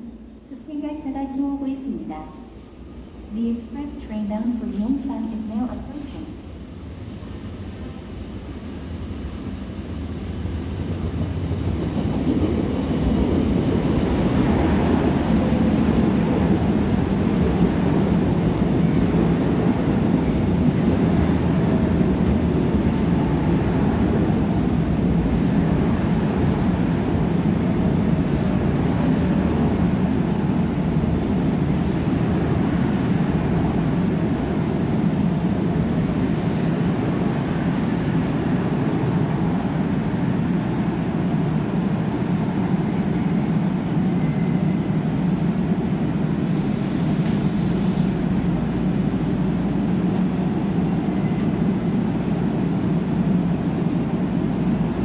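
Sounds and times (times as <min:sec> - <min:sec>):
train wheels squealing: 0:00.0 - 0:00.8, 0:29.2 - 0:33.6, 0:34.9 - 0:44.8, 0:50.9 - 0:51.5
electric train rumbling: 0:00.0 - 0:55.0.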